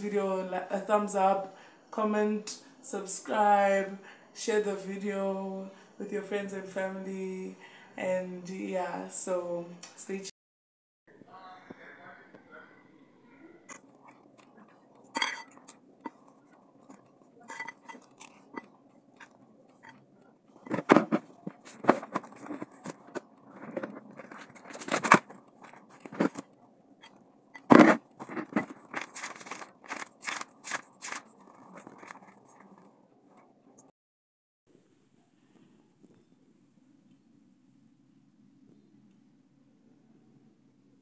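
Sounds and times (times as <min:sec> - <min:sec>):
paper rustling and flipping: 0:13.7 - 0:26.6, 0:27.6 - 0:33.4
metal spoon scraping ceramic bowl: 0:14.0 - 0:20.0.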